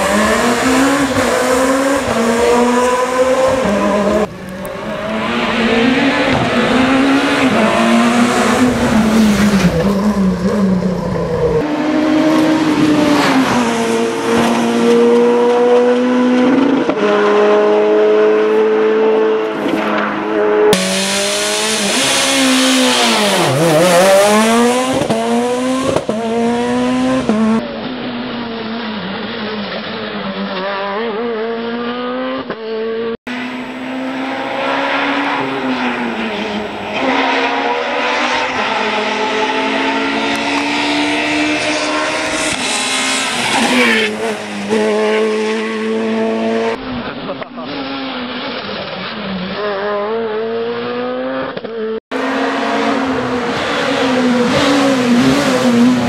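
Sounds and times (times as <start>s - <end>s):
rally car engine revving past: 0.0s - 27.6s.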